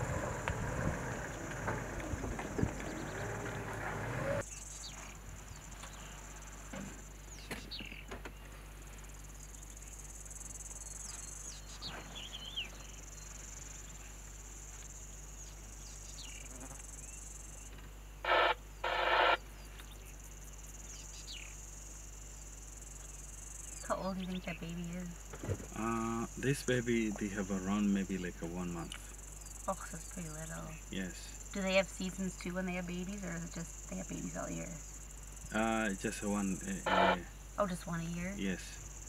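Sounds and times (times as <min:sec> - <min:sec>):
low rumble: 0:00.0 - 0:04.4
insects chirring: 0:00.0 - 0:39.0
loud pitched calls: 0:18.3 - 0:19.4, 0:35.5 - 0:38.3
faint bird chirps: 0:22.9 - 0:38.9.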